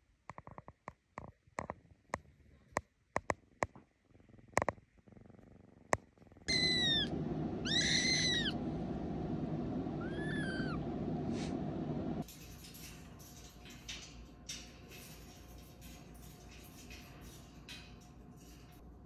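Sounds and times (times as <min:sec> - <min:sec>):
kitten mewing: 0:06.5 - 0:08.6, 0:10.0 - 0:10.8
steady low rumble: 0:06.5 - 0:12.3.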